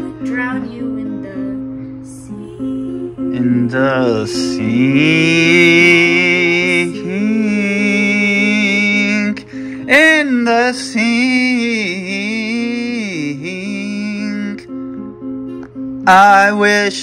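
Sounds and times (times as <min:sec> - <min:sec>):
woman singing: 0:00.0 - 0:07.5
acoustic guitar: 0:00.0 - 0:17.0.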